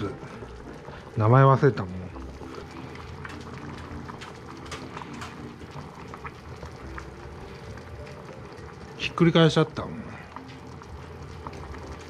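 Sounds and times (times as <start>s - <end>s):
pot bubbling: 0.0s - 12.0s
small pops and ticks: 2.4s - 8.2s.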